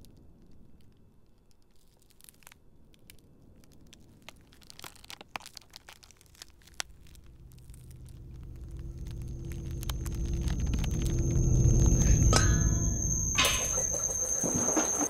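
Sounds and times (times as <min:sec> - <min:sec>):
salad greens tearing and crackling: 0:01.3 - 0:11.8.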